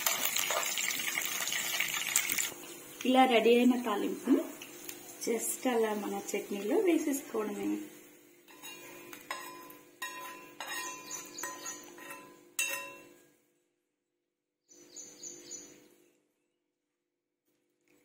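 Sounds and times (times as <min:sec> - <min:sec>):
metal spoon clinking on pan: 0:08.5 - 0:13.2.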